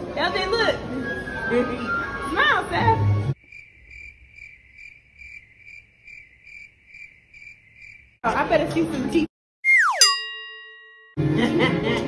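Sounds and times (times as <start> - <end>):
crickets chirping: 3.4 - 8.2.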